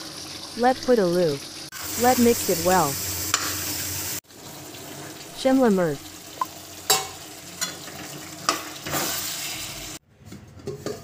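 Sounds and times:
curry sizzling in a pan: 0.0 - 10.0
metal ladle clinking on pan: 6.9 - 7.8.

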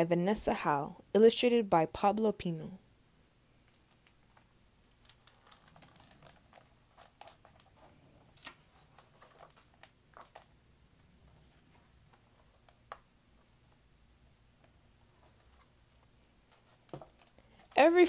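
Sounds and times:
book pages turning: 3.6 - 13.8, 14.6 - 17.8.

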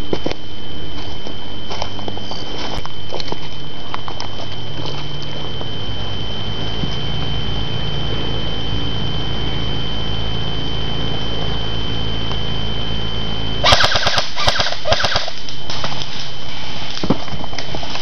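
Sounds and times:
airsoft guns firing bursts: 13.6 - 15.5
single airsoft shots: 13.6 - 16.0.

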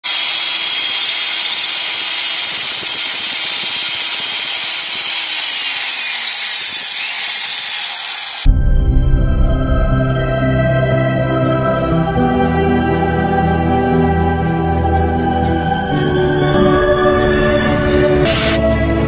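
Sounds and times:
electric drill boring into masonry: 0.0 - 8.5.

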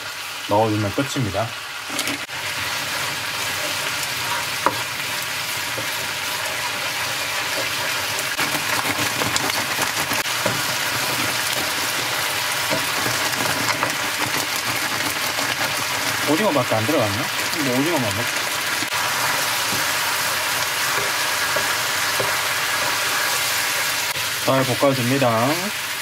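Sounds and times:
sauce sizzling in a pan: 0.0 - 26.0
utensil clicking against pan: 7.5 - 16.2.

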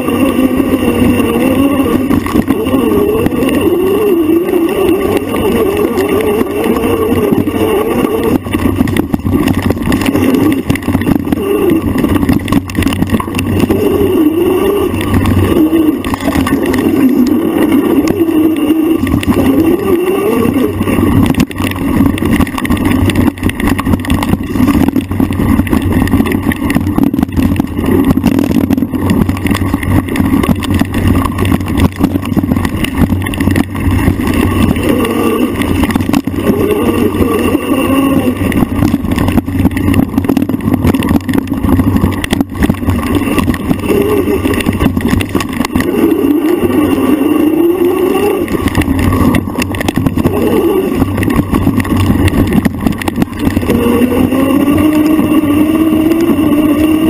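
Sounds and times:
motorbike engine running hard: 34.6 - 38.4, 50.2 - 51.3, 53.5 - 57.0.

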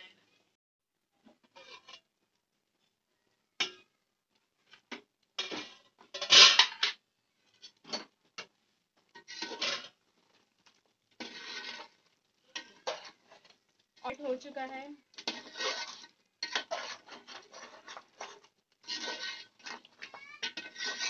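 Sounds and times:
metal lid clattering on pot: 5.4 - 7.0.

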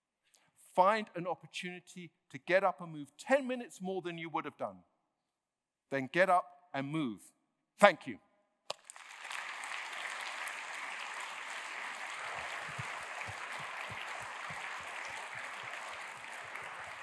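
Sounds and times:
audience applauding: 8.7 - 17.0.

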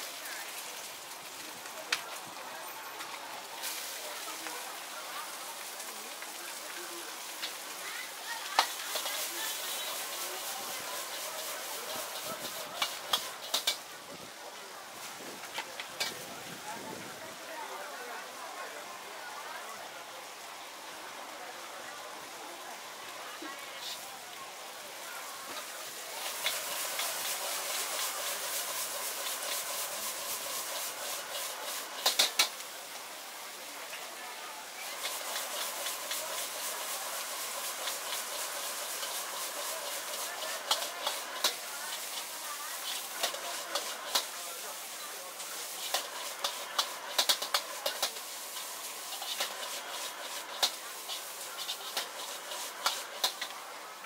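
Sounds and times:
noodles sizzling in hot oil: 0.0 - 54.0
metal spatula scraping wok: 8.5 - 13.8, 25.6 - 32.6, 34.8 - 45.0, 45.6 - 53.5
sharp clacks of metal on wok: 8.6 - 10.1, 11.1 - 13.8, 15.9 - 16.2, 26.2 - 32.6, 37.6 - 44.3, 45.8 - 48.2, 49.1 - 53.5.

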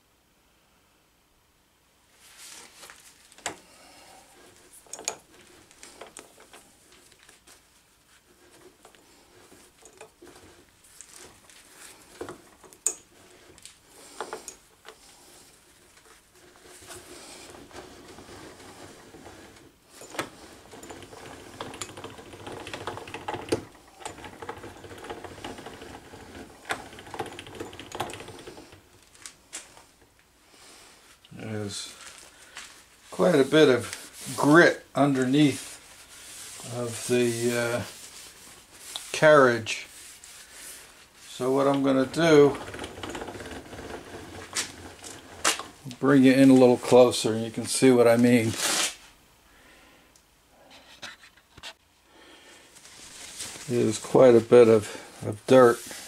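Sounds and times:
gearing clattering rattle: 16.4 - 29.3, 41.3 - 46.0
lathe carriage clicks and knocks: 18.0 - 28.8, 41.7 - 45.8
metal rubbing on metal: 33.0 - 47.2.

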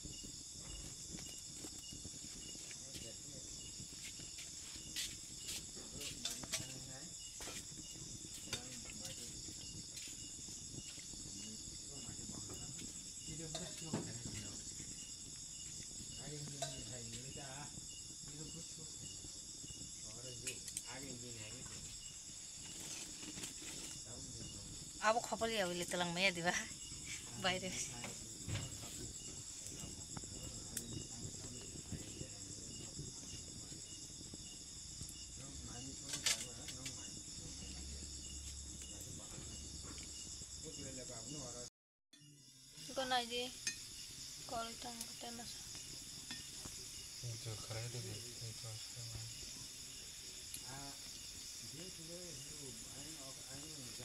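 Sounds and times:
faint low crackles: 0.0 - 41.6
crickets chirring: 0.0 - 54.0
high insect drone: 0.0 - 54.0.

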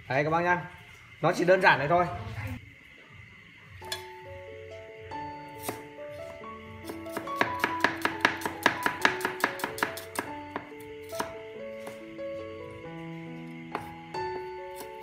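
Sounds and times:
cleaver chopping on wooden board: 7.1 - 12.0, 13.7 - 13.9.

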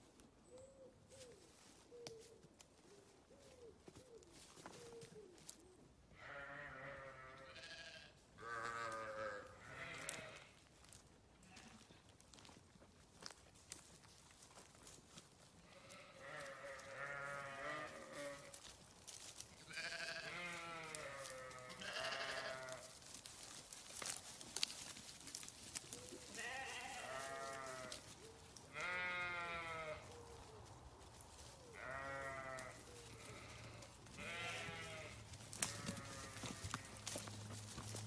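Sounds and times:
sheep bleating: 6.2 - 10.6, 15.7 - 18.6, 19.7 - 22.9, 26.3 - 28.0, 28.7 - 30.1, 31.7 - 37.1.

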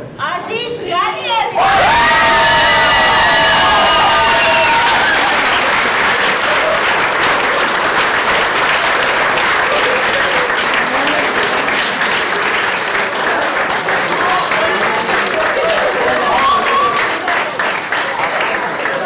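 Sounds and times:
high shrieks of cheering: 1.5 - 5.7, 15.3 - 17.4
crowd applause: 1.6 - 19.0.

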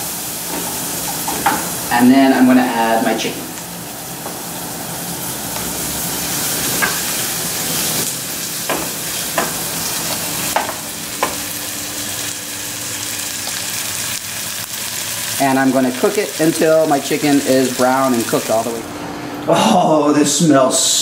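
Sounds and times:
chicken sizzling in oil: 0.0 - 19.0
wooden spoon knocking on pan: 8.7 - 9.6, 10.6 - 11.4.

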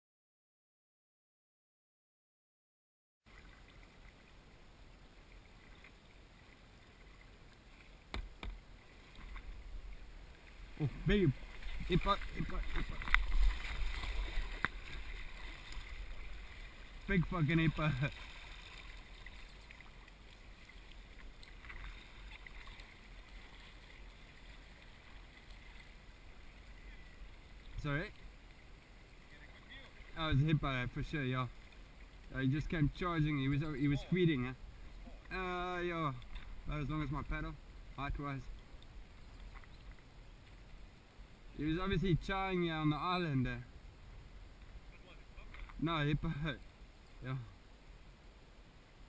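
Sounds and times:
paddles splashing: 3.3 - 37.4
water washing around kayak: 3.3 - 37.8.

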